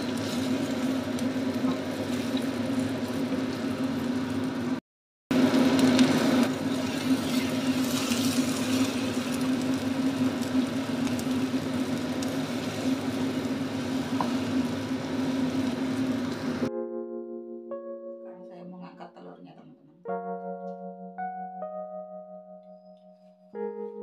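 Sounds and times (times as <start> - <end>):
omelette sizzling in oil: 0.0 - 4.8, 5.4 - 16.7
range hood fan humming: 0.0 - 4.8, 5.4 - 16.7.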